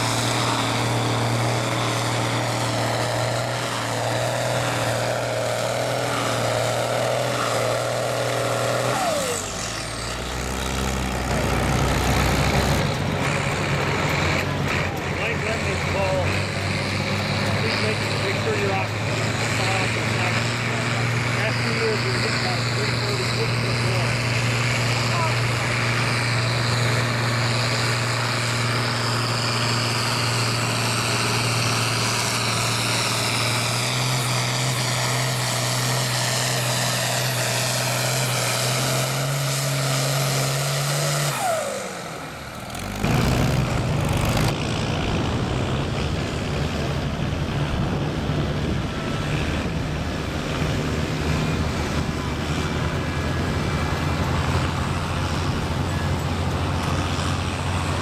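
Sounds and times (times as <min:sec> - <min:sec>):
tractor engine running steadily: 0:00.0 - 0:58.0
tractor engine under heavy load: 0:00.0 - 0:58.0.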